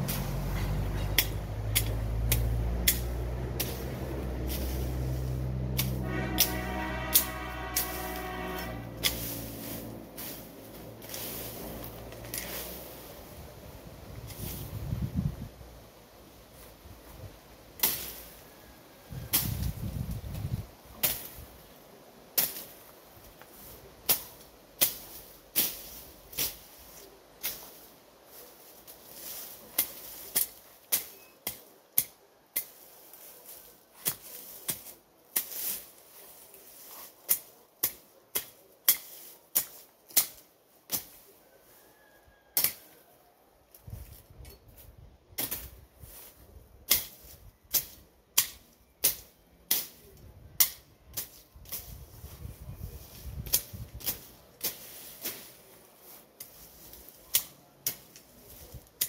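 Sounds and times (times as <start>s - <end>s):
machete chopping grass: 0.0s - 13.0s, 17.8s - 18.4s, 19.3s - 19.9s, 20.9s - 21.5s, 22.3s - 41.2s, 45.4s - 52.0s, 53.2s - 55.8s, 56.4s - 59.0s.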